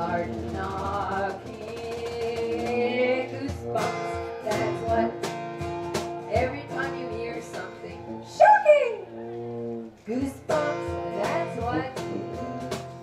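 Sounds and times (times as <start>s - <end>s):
person singing: 0.0s - 5.2s, 10.1s - 13.0s
bongo hits: 0.0s - 7.6s, 10.4s - 13.0s
strummed acoustic guitar: 0.0s - 8.4s, 9.4s - 13.0s.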